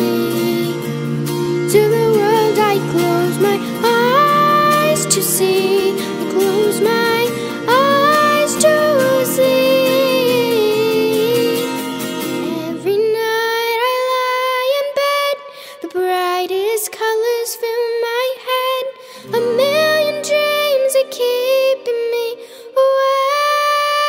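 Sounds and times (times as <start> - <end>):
girl singing: 0.0 - 0.8, 1.6 - 24.0
pop ballad backing track: 0.0 - 14.5, 19.2 - 24.0.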